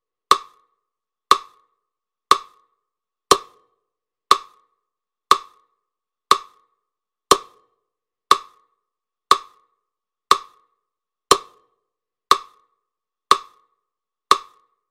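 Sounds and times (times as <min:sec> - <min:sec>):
wood-block clicks: 0:00.3 - 0:00.7, 0:01.3 - 0:02.7, 0:03.3 - 0:03.7, 0:04.3 - 0:04.7, 0:05.3 - 0:05.7, 0:06.3 - 0:06.7, 0:07.3 - 0:07.7, 0:08.3 - 0:11.7, 0:12.3 - 0:14.8.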